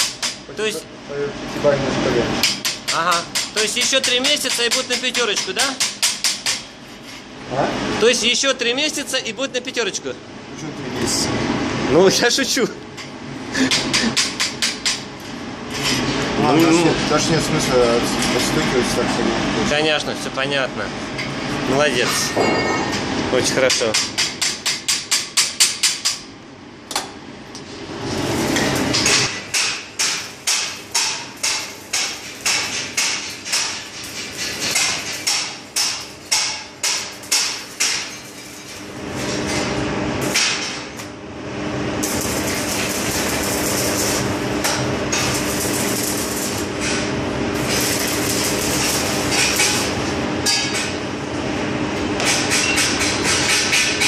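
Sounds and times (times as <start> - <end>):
hammer striking weld slag: 0.0 - 0.4, 2.4 - 6.7, 28.6 - 38.3, 40.2 - 41.0, 42.0 - 51.0, 52.2 - 54.0
arc welding crackling hiss: 28.0 - 39.6, 41.7 - 50.2.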